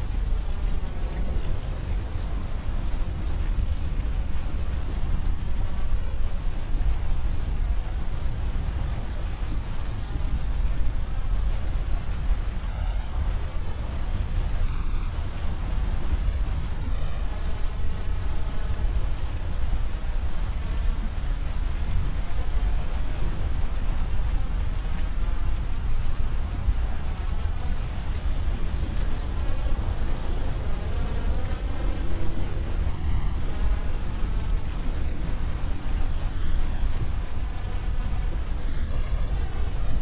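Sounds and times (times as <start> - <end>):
low rumble: 11.7 - 40.0.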